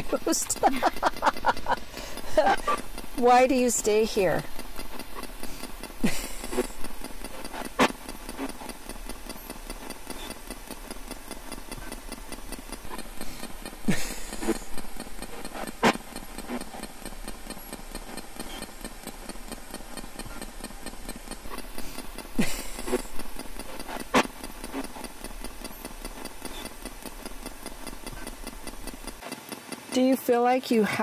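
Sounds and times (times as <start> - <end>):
garbled voice fragments: 0.0 - 4.5
radio static hiss with ticking: 0.0 - 31.0.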